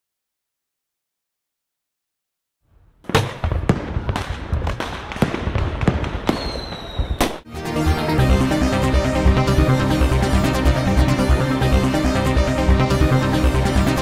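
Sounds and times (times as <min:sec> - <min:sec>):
fireworks bangs and crackles: 0:03.0 - 0:07.5
whistling firework: 0:03.1 - 0:07.5
electronic music with steady beat: 0:07.5 - 0:14.0.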